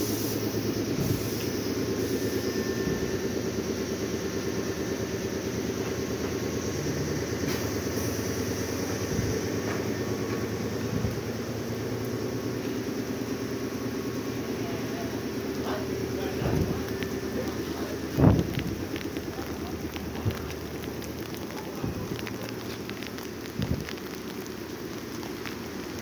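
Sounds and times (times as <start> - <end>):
electric train coming to a stop: 0.0 - 22.8
train equipment humming: 0.0 - 26.0.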